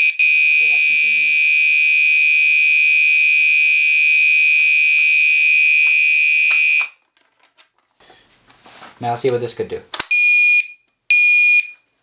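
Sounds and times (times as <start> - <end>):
fire alarm horn continuous tone: 0.0 - 7.0.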